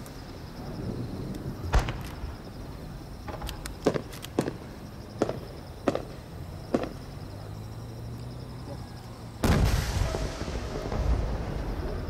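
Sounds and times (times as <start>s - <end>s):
sharp firework pops: 1.7s - 2.5s, 3.3s - 4.6s, 5.2s - 7.0s, 9.4s - 11.4s.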